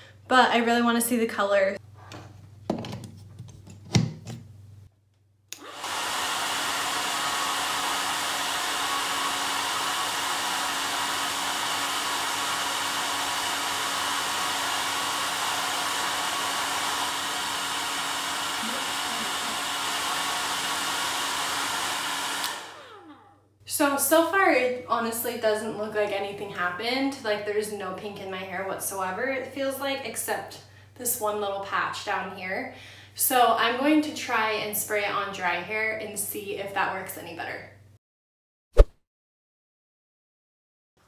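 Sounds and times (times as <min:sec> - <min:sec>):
hair dryer running: 0:05.6 - 0:23.3.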